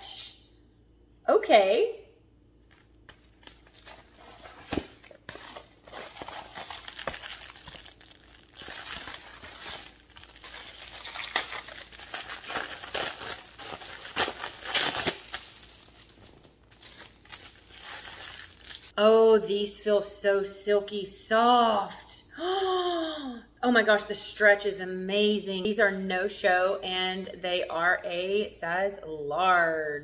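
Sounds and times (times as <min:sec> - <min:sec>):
plastic bags crinkling and rustling: 0:02.6 - 0:18.9
plastic crackles: 0:02.6 - 0:18.9.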